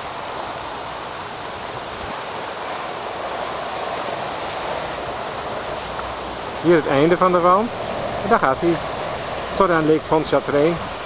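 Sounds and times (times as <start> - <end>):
distant highway traffic hiss: 0.0 - 11.0.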